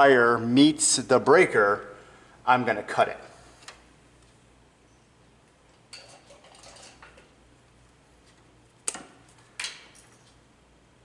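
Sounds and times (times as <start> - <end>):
wire cutters snapping: 8.8 - 10.1.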